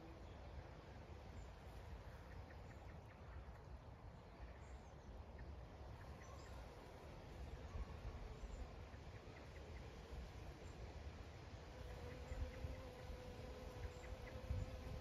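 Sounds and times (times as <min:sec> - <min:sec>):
faint bird chirps: 0:00.0 - 0:10.9, 0:11.8 - 0:15.0
bees buzzing: 0:11.6 - 0:15.0.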